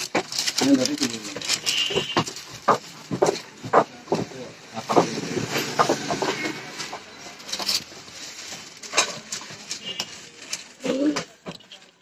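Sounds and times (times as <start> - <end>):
sharp clicks and knocks: 0.0 - 7.9
faint voices: 0.0 - 12.0.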